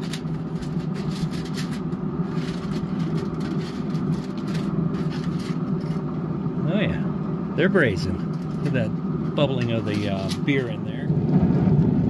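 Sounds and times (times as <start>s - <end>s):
aluminium foil crinkling: 0.0s - 6.1s, 9.6s - 10.8s
low mechanical hum: 0.0s - 12.0s.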